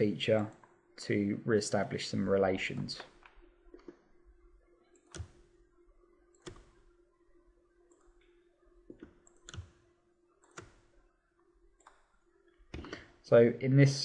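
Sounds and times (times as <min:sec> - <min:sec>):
low steady hum: 0:00.0 - 0:14.0
computer mouse clicks: 0:06.3 - 0:06.8, 0:08.9 - 0:09.8, 0:10.4 - 0:10.9.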